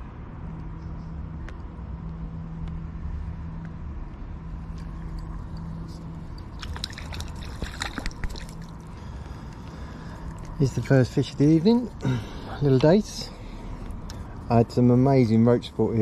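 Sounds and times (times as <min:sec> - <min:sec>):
steady low hum: 0:00.0 - 0:16.0
fish splashing at water surface: 0:06.5 - 0:08.9.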